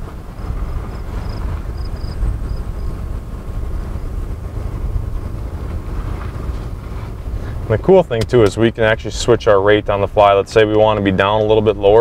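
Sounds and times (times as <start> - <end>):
wind on microphone: 0.0 - 7.5
pickup truck rumbling: 0.0 - 12.0
road noise: 0.0 - 12.0.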